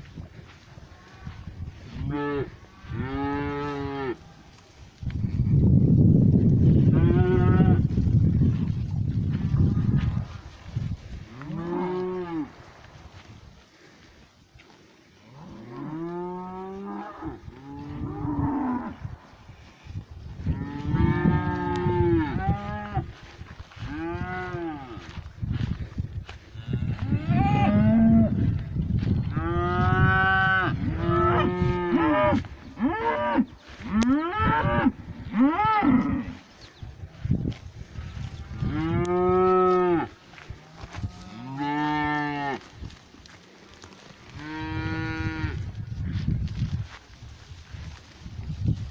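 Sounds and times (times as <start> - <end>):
cattle mooing: 29.4 - 34.8.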